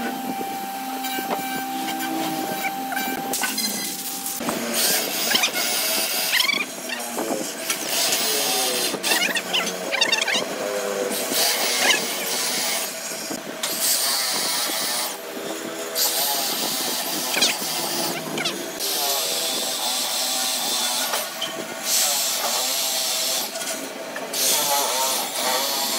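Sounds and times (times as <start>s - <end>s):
electric drill boring into wood: 2.4s - 25.9s.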